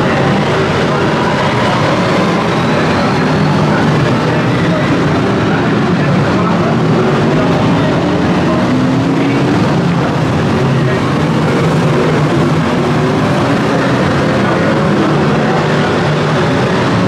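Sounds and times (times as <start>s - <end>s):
racing car engines: 0.0s - 17.0s.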